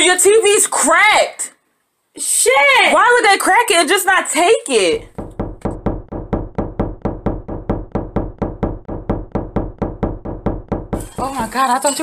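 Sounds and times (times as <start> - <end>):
fist banging on door: 5.0 - 11.6.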